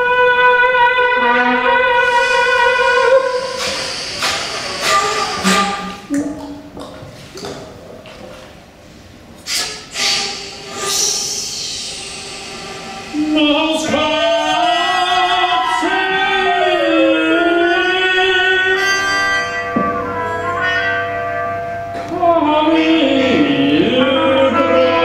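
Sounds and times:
contemporary classical music: 0.0 - 7.9, 11.8 - 25.0
breathy wind instrument noises: 1.1 - 6.1, 9.4 - 16.2.

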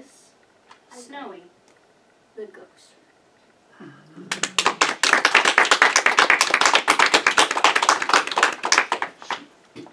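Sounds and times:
small audience clapping: 4.2 - 9.9.

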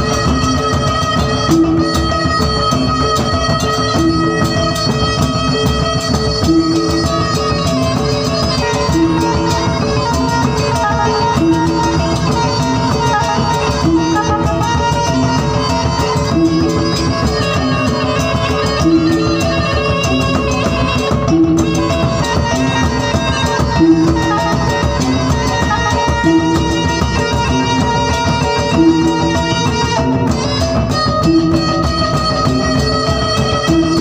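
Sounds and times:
large drums beaten with sticks: 0.0 - 34.0.

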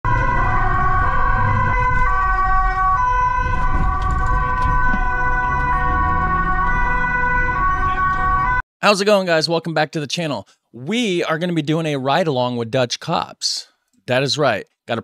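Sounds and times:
two-tone police siren: 0.0 - 8.6
moving vehicle rumble: 0.1 - 8.6.

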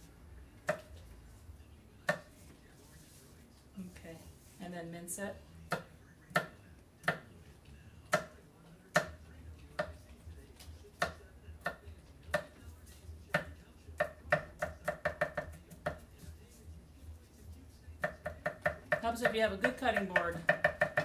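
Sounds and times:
knife chopping on cutting board: 0.6 - 0.9, 2.0 - 2.4, 8.1 - 9.2, 13.3 - 16.1, 18.0 - 21.0.

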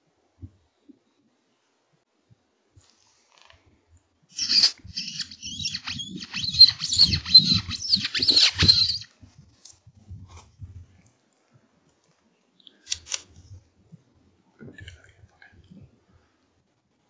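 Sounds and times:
fox call squeaks: 4.4 - 9.1.

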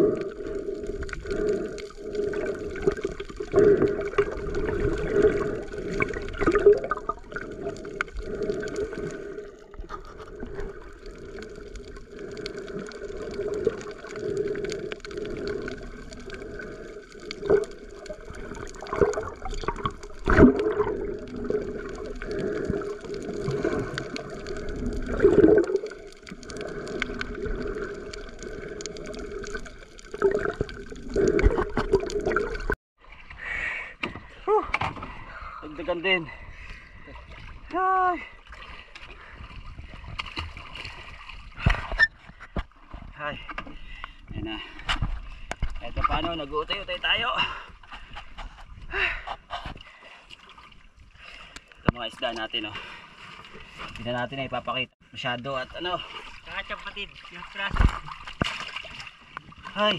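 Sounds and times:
underwater swishing and gurgling: 0.0 - 59.9
underwater knocks and thumps: 17.3 - 27.8, 29.0 - 32.8, 41.5 - 43.8, 57.7 - 59.6.

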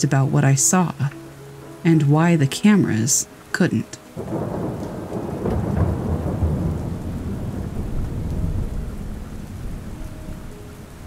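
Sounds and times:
rain hissing: 0.0 - 11.0
rolling thunder: 4.2 - 11.0.

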